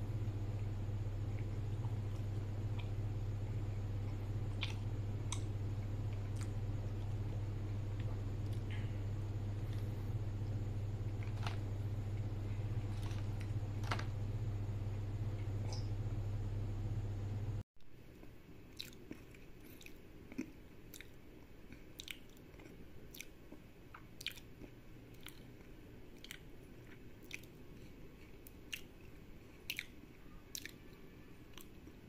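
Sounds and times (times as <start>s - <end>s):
chewing with wet mouth clicks: 4.0s - 7.1s, 18.2s - 32.0s.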